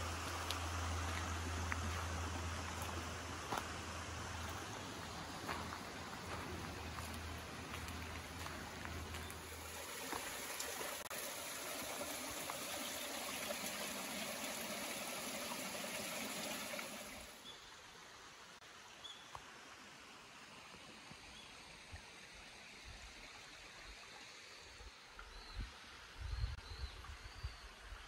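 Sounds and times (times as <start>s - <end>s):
stream water rushing: 0.0s - 21.0s.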